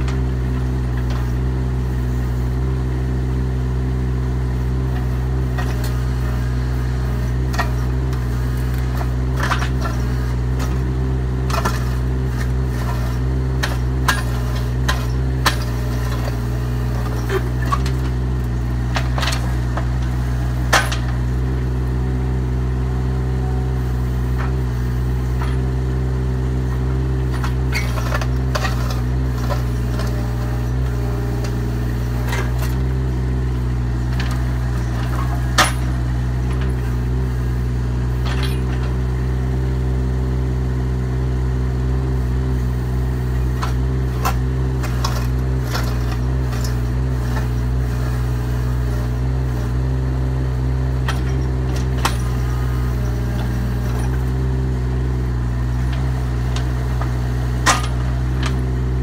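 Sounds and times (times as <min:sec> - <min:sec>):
diesel engine running: 0:00.0 - 0:59.0
excavator bucket knocks and clanks: 0:10.6 - 0:21.4, 0:27.4 - 0:32.8, 0:55.9 - 0:58.8.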